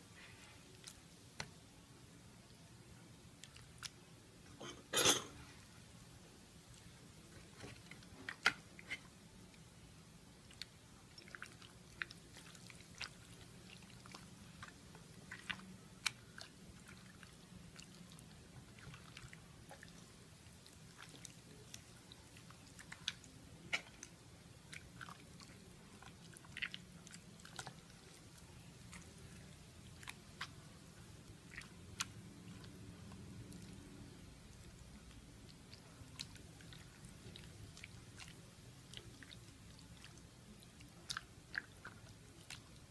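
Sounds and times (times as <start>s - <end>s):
hand squishing wet meat: 10.4s - 42.9s.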